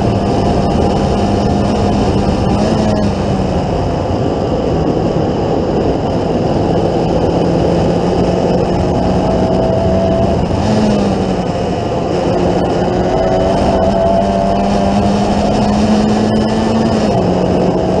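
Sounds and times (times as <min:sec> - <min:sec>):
race car engine running hard: 0:00.0 - 0:18.0
wind rush: 0:00.0 - 0:18.0.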